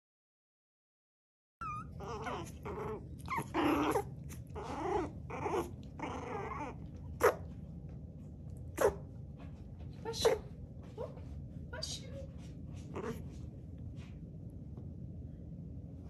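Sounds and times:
puppies growling and whining: 0:01.6 - 0:07.4, 0:12.9 - 0:13.3.

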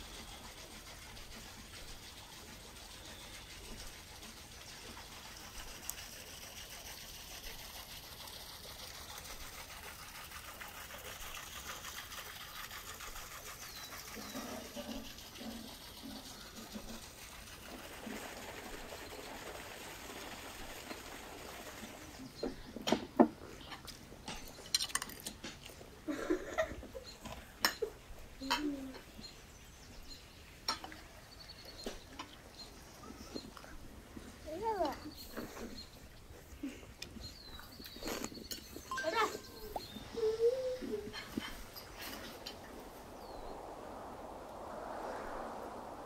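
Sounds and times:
small birds chirping: 0:12.5 - 0:15.0, 0:28.3 - 0:44.1.

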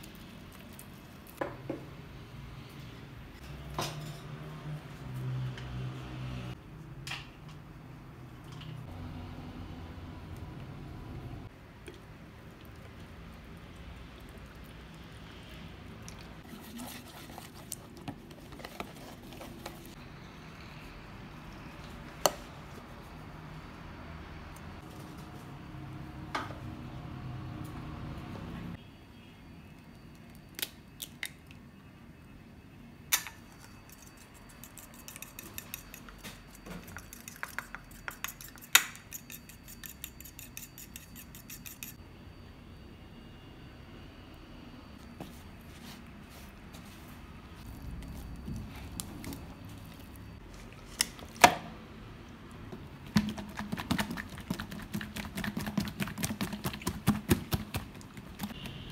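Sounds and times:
spatula stirring and scraping bowl: 0:16.4 - 0:20.0, 0:33.6 - 0:42.0, 0:53.2 - 0:58.6
fork clicking against a bowl: 0:33.9 - 0:36.2.

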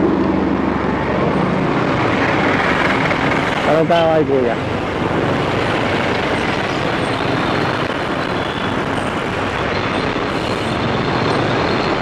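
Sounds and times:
motorcycle road noise: 0:00.0 - 0:12.0
wind rush: 0:00.0 - 0:12.0.

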